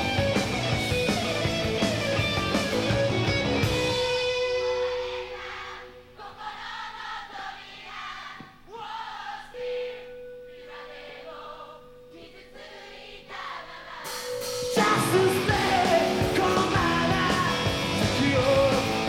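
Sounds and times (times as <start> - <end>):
rock band playing loudly: 0.0 - 5.4, 14.0 - 19.0
crowd singing together: 4.9 - 19.0.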